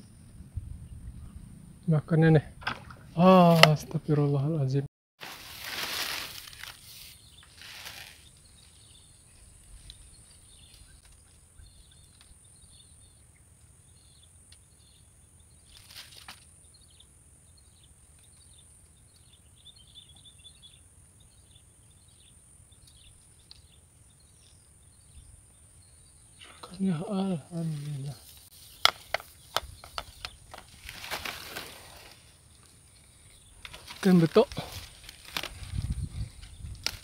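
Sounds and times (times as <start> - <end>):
low wind rumble on microphone: 0.0 - 3.2, 34.5 - 37.0.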